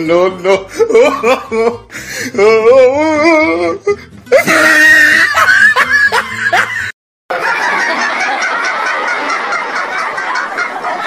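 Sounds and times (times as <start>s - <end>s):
music: 0.0s - 6.9s.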